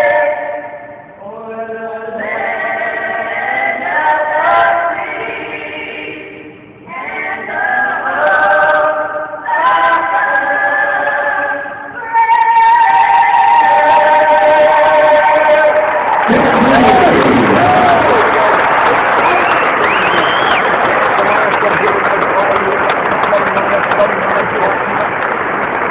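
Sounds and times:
vocal group singing a cappella: 0.0 - 18.0.

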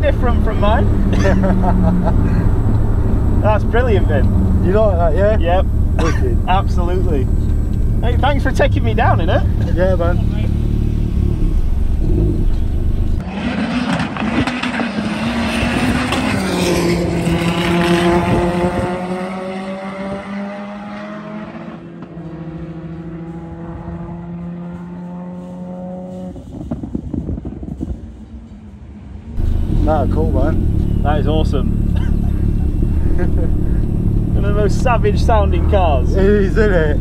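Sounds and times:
drag car engine accelerating: 0.0 - 37.0.

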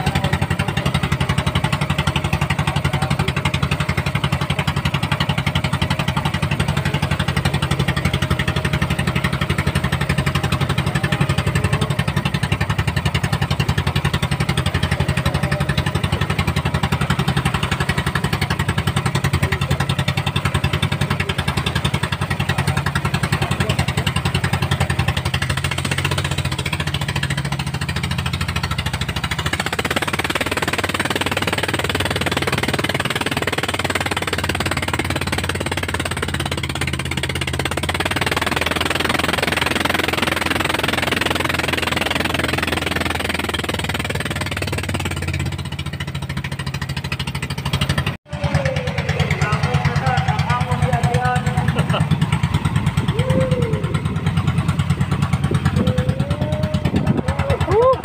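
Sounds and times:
boat engine throbbing: 0.0 - 58.0.

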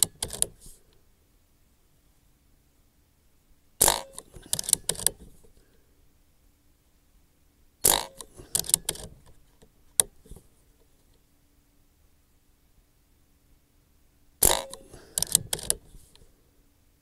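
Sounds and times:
metallic clicks of rifle action: 0.0 - 0.7, 3.8 - 5.6, 7.8 - 10.5, 14.4 - 16.3
air rifle shots: 3.8 - 5.1, 7.8 - 9.0, 14.4 - 15.7.

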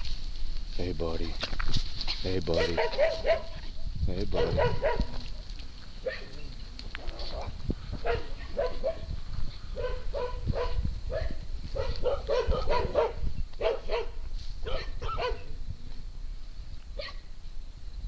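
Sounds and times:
dog barking: 2.5 - 3.7, 4.3 - 5.2, 6.0 - 6.4, 7.0 - 9.1, 9.8 - 15.5, 17.0 - 17.3.

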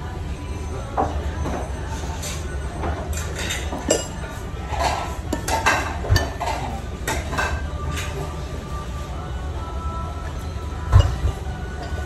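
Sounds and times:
spoon and dishes clinking: 1.0 - 8.2, 10.9 - 12.0.

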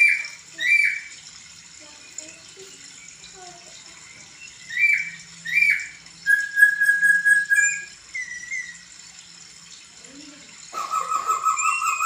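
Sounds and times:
bird singing whistled notes: 4.4 - 8.8.

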